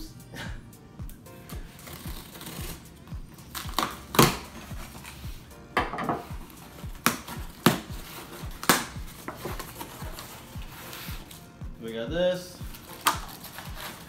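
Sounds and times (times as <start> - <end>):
background music with steady beat: 0.0 - 14.0
knife slicing box tape: 1.8 - 2.8, 3.5 - 5.2, 7.0 - 11.3, 12.8 - 14.0.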